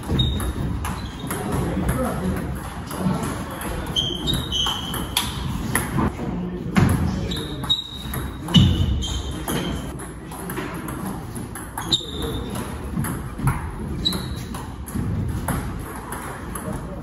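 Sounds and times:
shoe squeaks: 0.0 - 1.6, 3.5 - 5.8, 7.2 - 9.9, 11.8 - 12.7, 13.9 - 14.7
table tennis ball hits: 0.0 - 6.1, 6.8 - 17.0.

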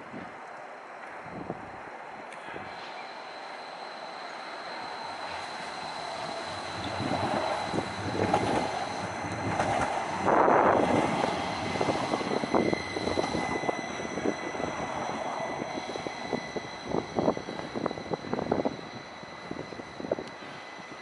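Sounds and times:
trams running on track: 0.0 - 21.0
wheel clicks on rails: 6.2 - 13.9.

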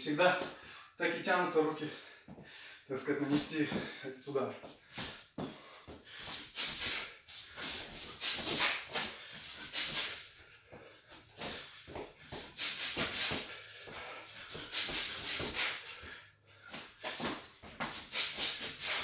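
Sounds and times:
sharp hissing exhalations: 6.2 - 10.3, 12.5 - 13.7, 14.5 - 16.1, 18.1 - 19.0.

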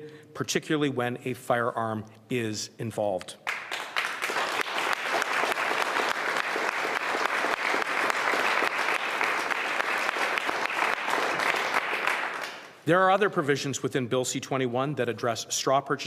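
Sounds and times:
audience clapping: 3.4 - 12.8.

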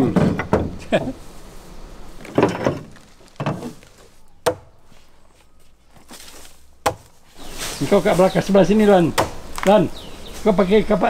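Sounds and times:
axe chopping wood: 4.4 - 4.8, 6.8 - 7.2, 9.1 - 9.8.

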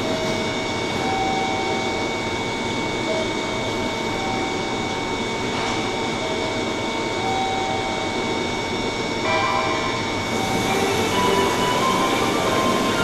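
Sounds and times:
electric train hum and whine: 0.0 - 13.0
steady tones: 9.2 - 13.0.

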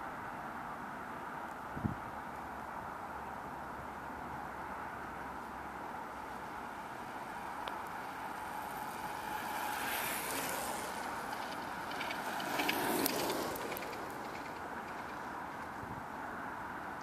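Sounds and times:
trike passing on tarmac: 1.0 - 17.0.

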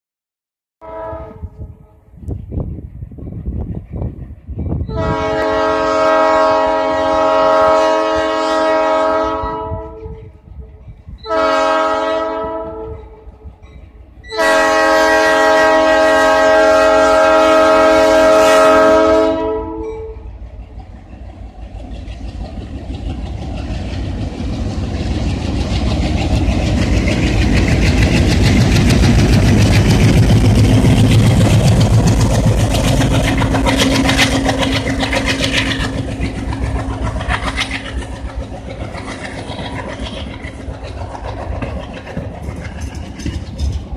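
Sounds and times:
locomotive air horn blasts: 0.8 - 2.0, 4.9 - 10.2, 11.2 - 13.2, 14.3 - 20.3.

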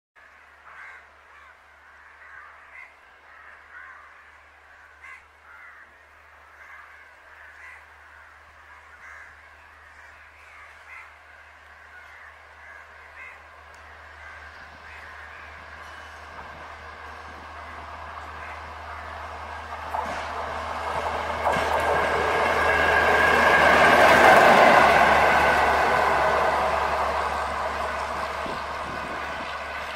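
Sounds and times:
crows cawing: 0.2 - 16.0, 17.6 - 19.2
approaching train: 0.3 - 29.9.

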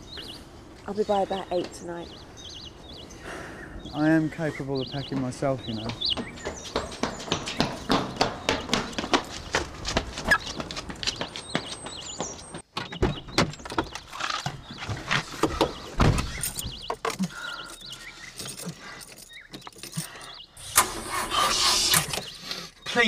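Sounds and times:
running footsteps on pavement: 4.1 - 12.7
keys rattling: 16.2 - 20.5.

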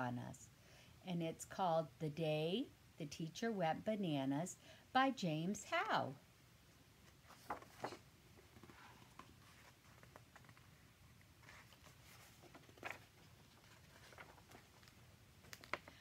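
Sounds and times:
book pages turning: 7.0 - 16.0.

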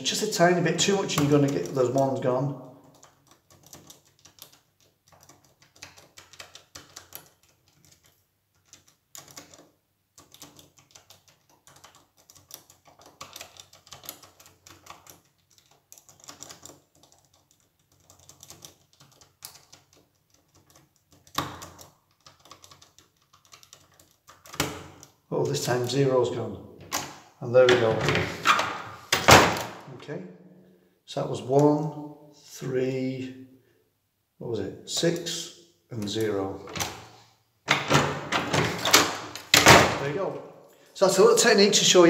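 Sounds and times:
door lock buttons clicking: 36.0 - 40.1.

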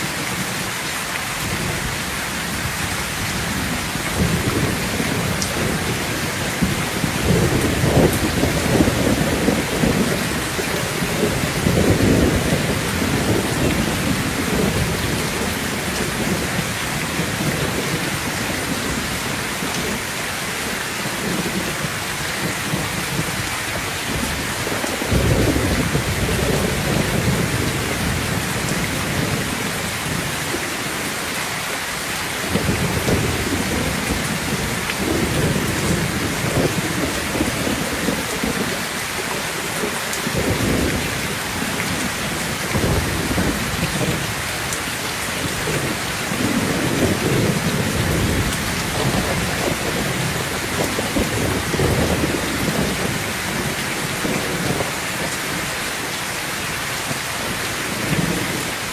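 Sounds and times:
heavy rain pouring: 0.0 - 58.9
rolling thunder: 3.5 - 19.0, 40.3 - 44.4, 45.4 - 55.3.

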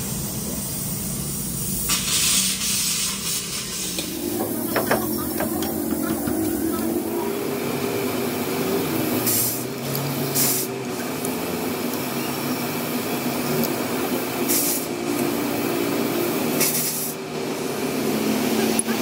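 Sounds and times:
metal lathe humming: 4.0 - 9.1.

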